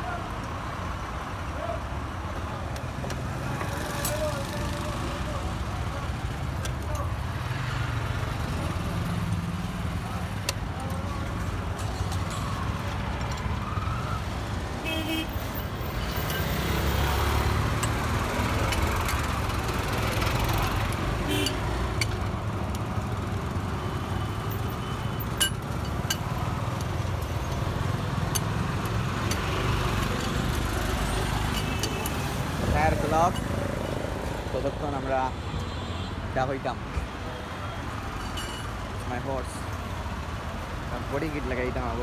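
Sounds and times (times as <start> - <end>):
roadside traffic rumble: 0.0 - 42.0
vehicle passing: 16.3 - 22.0.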